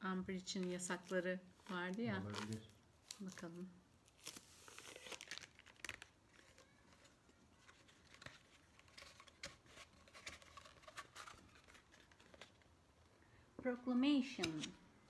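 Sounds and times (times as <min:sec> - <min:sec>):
paper rustling and crackling: 0:00.6 - 0:12.7.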